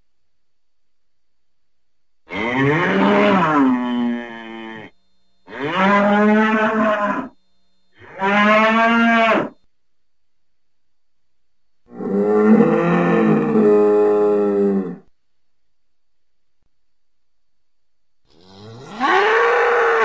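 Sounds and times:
bull mooing: 2.3s - 7.4s, 8.0s - 9.6s, 11.9s - 15.1s, 18.3s - 20.0s.

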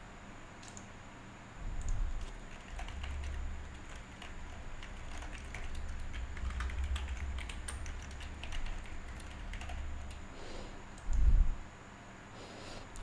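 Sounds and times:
low steady hum: 0.0s - 13.0s
keyboard typing: 0.6s - 0.9s, 1.8s - 10.3s.

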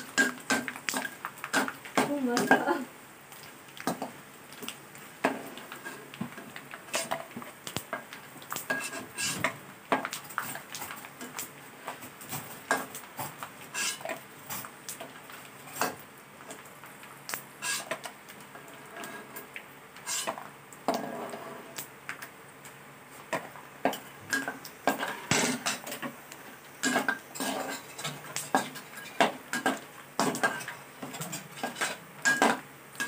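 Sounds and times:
metal spatula scraping a wok: 8.7s - 9.5s, 13.7s - 14.2s, 17.6s - 18.0s, 20.0s - 21.7s, 26.8s - 32.6s.

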